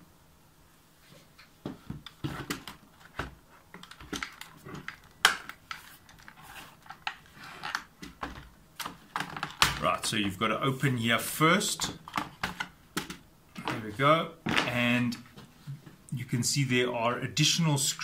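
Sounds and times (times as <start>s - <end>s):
plastic keyboard clicks and knocks: 2.0s - 9.9s, 11.8s - 13.8s.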